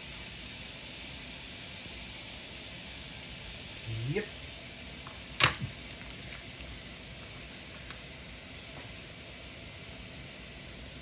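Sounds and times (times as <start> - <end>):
steak sizzling on grill pan: 0.0 - 11.0
faint pop: 5.4 - 5.8.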